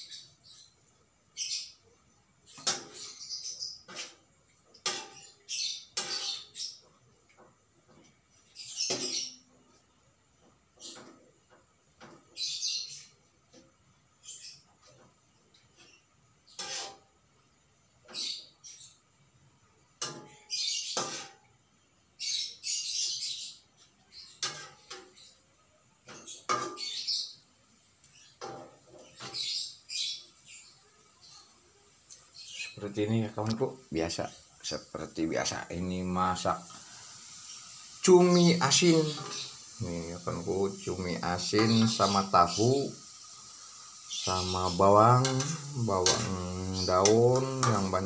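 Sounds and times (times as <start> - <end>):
metal spatula scraping frying pan: 4.8 - 6.6, 16.5 - 17.2, 20.0 - 21.4, 24.4 - 25.1, 44.2 - 48.0.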